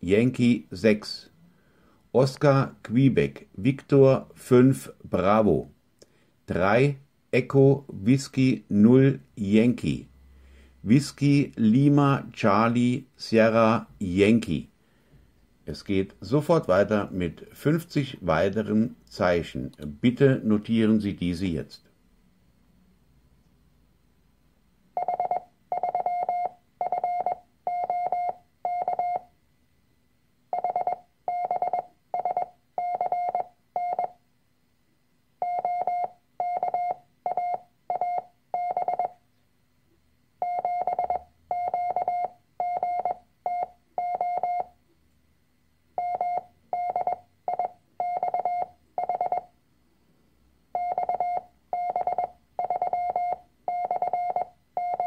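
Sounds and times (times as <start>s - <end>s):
morse code beeps: 25.0s - 29.3s, 30.5s - 34.2s, 35.4s - 39.2s, 40.4s - 44.8s, 46.0s - 49.5s, 50.7s - 55.0s.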